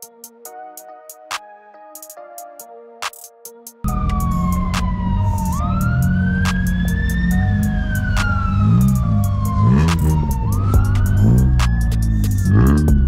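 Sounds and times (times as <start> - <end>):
deep sliding bass: 3.9 - 13.0
siren-like synth tone: 3.9 - 13.0
electronic dance music: 5.3 - 13.0.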